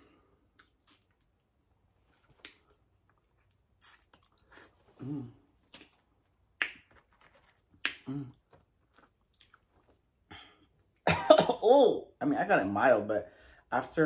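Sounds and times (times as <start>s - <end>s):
mouth smacks: 2.3s - 2.8s, 3.7s - 9.6s
person humming: 5.0s - 5.4s.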